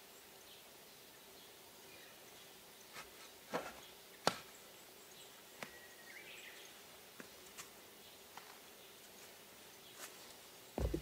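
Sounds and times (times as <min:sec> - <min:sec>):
light knocks and clicks: 0:10.8 - 0:11.0.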